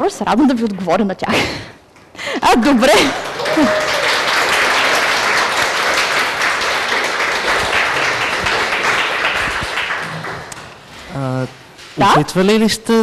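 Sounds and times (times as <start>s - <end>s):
audience applauding: 2.4s - 10.8s.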